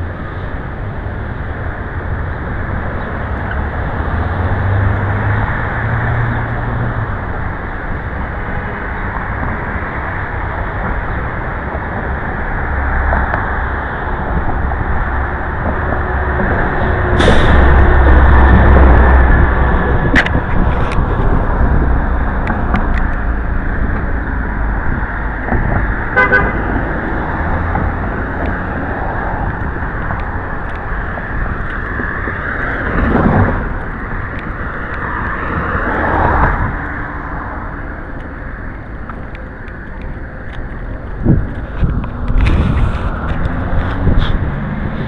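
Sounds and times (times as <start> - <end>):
cars and heavy vehicles passing: 0.0 - 45.0
deep vehicle rumble: 0.0 - 45.0
short car horn toot: 26.2 - 26.6.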